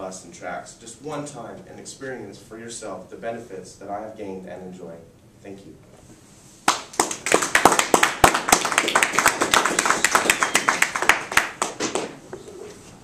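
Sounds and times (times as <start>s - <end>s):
group of people clapping: 6.6s - 12.2s.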